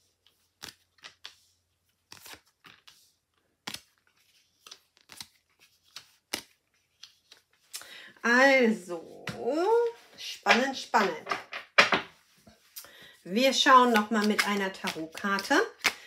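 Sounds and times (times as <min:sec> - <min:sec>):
cards snapping on a tabletop: 0:13.9 - 0:16.0.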